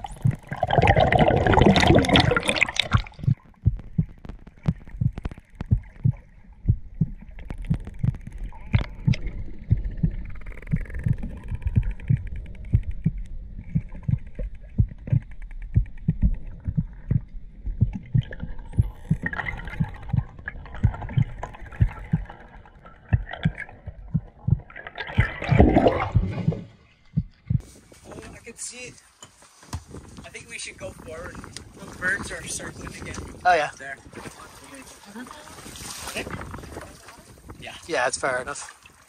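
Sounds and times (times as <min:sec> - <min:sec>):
rush of water: 0:00.0 - 0:03.4, 0:30.3 - 0:39.0
muffled underwater water thumps: 0:00.0 - 0:27.6, 0:30.8 - 0:34.8, 0:35.5 - 0:38.3.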